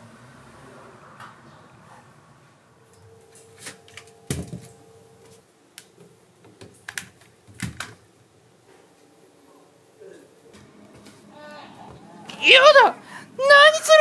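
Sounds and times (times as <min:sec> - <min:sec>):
faint steady hum: 0:02.4 - 0:14.0.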